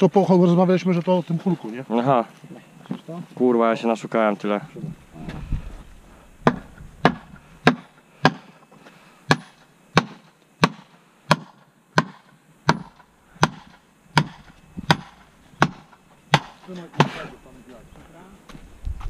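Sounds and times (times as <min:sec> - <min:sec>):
hammer striking stake: 0:06.4 - 0:08.6, 0:09.3 - 0:17.3.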